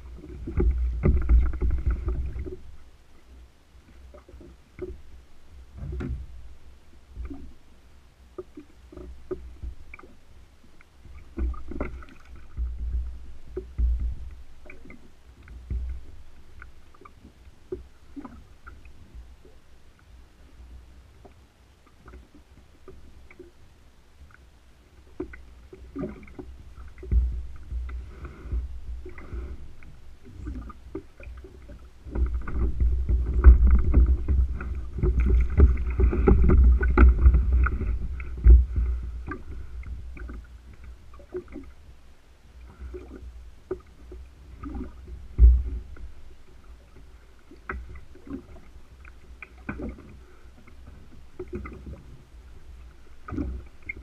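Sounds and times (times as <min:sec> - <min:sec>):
water sloshing against kayak hull: 0:00.0 - 0:54.0
low rumble: 0:25.5 - 0:49.0.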